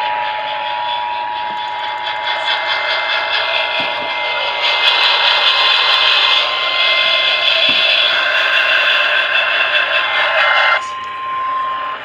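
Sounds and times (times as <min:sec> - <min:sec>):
high steady tone: 0:00.0 - 0:12.0.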